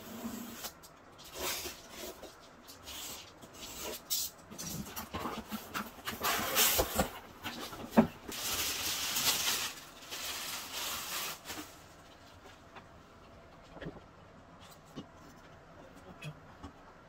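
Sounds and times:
cardboard and packing sheet rustling: 0.0s - 12.8s.

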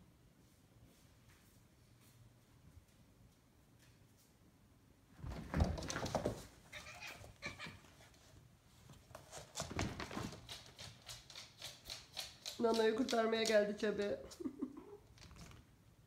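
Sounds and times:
cats thumping and scuffling: 5.1s - 13.6s
paws scrabbling on wooden floor: 5.2s - 13.7s
cat cry: 6.7s - 7.9s.

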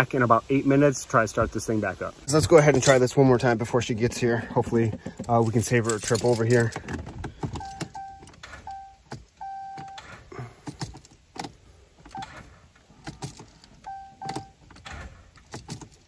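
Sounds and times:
keys jangling in ignition: 5.1s - 12.3s, 13.0s - 16.0s
dashboard warning chime beeping: 7.6s - 10.1s, 13.8s - 14.6s.

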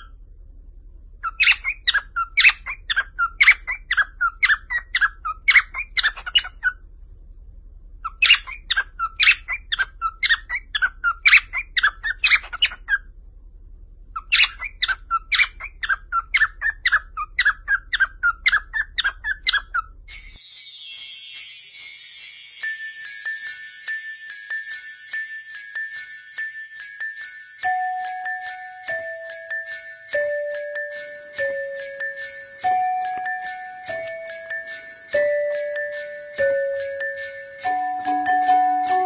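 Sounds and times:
cockatiels chirping: 1.2s - 6.7s, 8.0s - 13.0s, 14.2s - 19.9s, 26.8s - 39.0s.

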